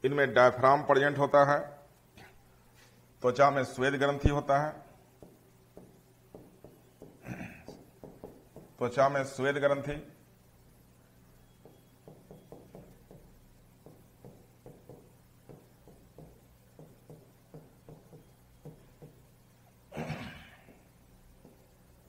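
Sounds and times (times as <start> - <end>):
chalk tapping on blackboard: 5.2 - 8.8, 11.5 - 19.3, 20.7 - 21.8.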